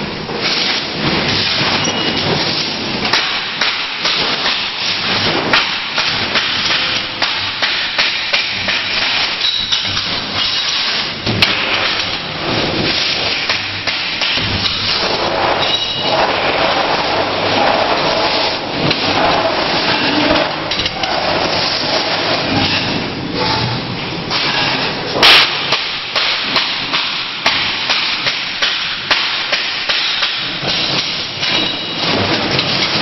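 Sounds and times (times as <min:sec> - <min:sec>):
welding snaps: 0:25.2 - 0:31.7.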